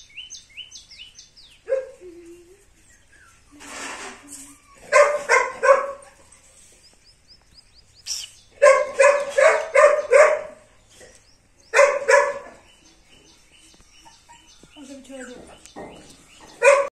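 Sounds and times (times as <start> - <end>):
puppies yapping: 2.8 - 6.6, 8.1 - 16.9.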